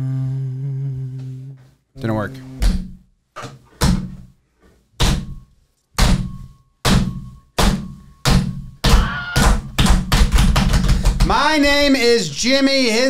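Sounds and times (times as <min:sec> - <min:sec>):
hands slapping wooden desk: 0:06.9 - 0:11.4.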